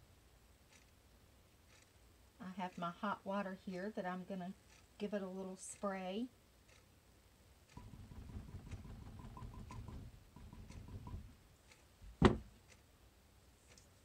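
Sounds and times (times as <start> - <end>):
sharp knock: 12.2 - 12.5.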